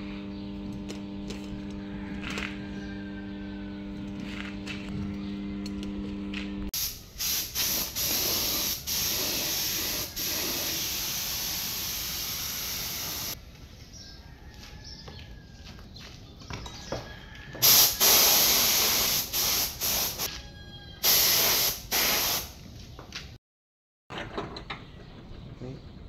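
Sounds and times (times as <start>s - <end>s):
paint spray gun hissing: 6.8s - 13.4s, 17.6s - 20.3s, 21.0s - 22.5s.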